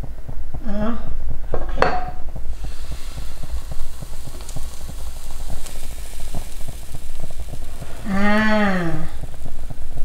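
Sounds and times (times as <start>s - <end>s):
batter sizzling in hot oil: 2.4s - 10.0s.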